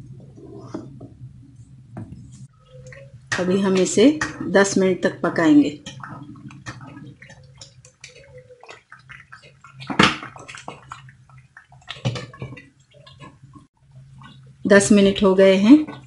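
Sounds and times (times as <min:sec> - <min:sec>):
spoon stirring thick food: 0:05.6 - 0:14.6.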